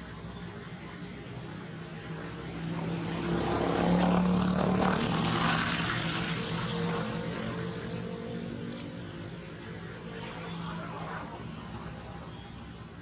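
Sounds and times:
engine drone passing by: 0:00.0 - 0:13.0.

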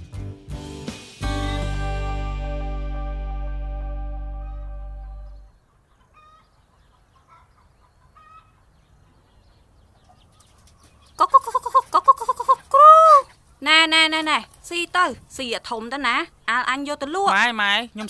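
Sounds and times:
music: 0:00.0 - 0:05.4
chicken clucking loudly: 0:04.4 - 0:13.4.

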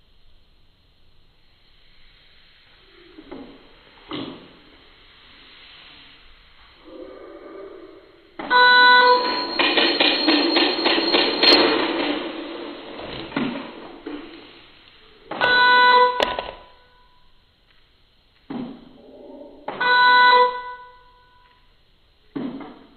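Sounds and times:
electronic buzzer beeps: 0:08.5 - 0:11.4, 0:15.4 - 0:17.2, 0:19.8 - 0:21.5.

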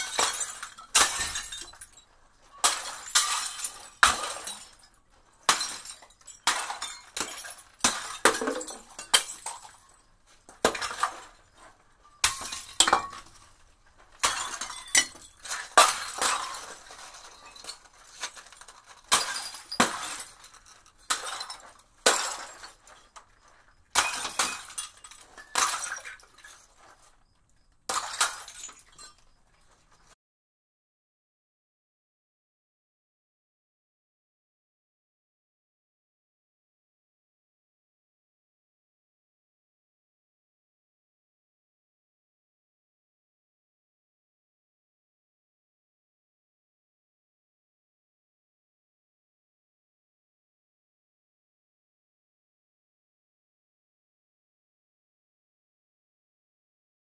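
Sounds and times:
glass bottles smashing: 0:00.0 - 0:30.1
glass shards tinkling: 0:28.0 - 0:30.0.

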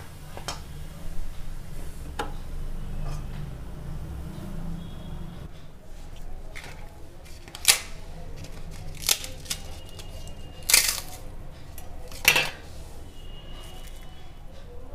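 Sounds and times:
crisp papads crunching: 0:06.5 - 0:11.2.

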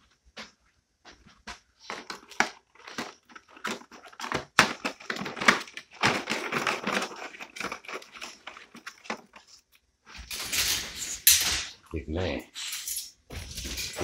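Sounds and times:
dog crunching a hard treat: 0:01.8 - 0:09.7.

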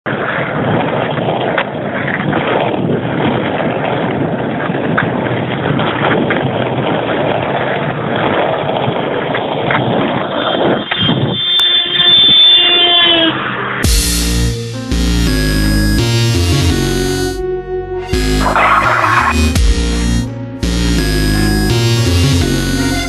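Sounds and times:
skateboard wheels rolling on asphalt: 0:00.1 - 0:13.8.

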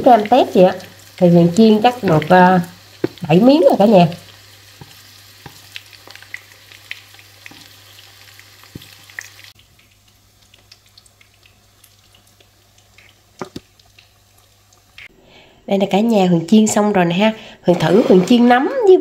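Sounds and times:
shrimp fritters sizzling in oil: 0:00.0 - 0:15.1.

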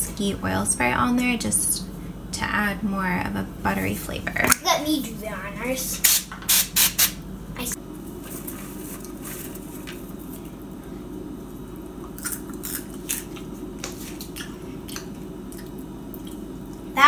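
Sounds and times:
steady low hum: 0:00.0 - 0:17.0
child chewing popcorn: 0:11.7 - 0:16.9.

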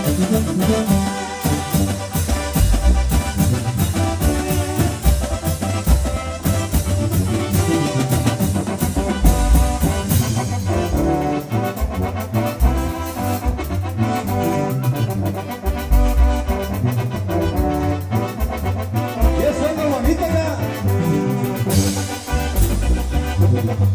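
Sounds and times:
drum kit: 0:00.0 - 0:23.9
keyboard melody: 0:00.0 - 0:23.9
bass drum: 0:01.4 - 0:14.1, 0:19.2 - 0:23.9.

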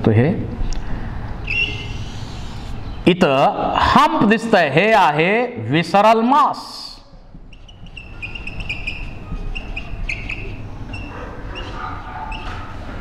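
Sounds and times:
marker squeaking on whiteboard: 0:01.4 - 0:03.0, 0:07.4 - 0:12.9.

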